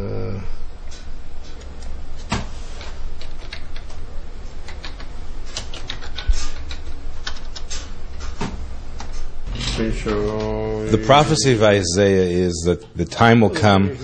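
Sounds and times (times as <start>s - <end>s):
low steady hum: 0.0s - 14.0s
computer keys clicking: 3.2s - 7.9s.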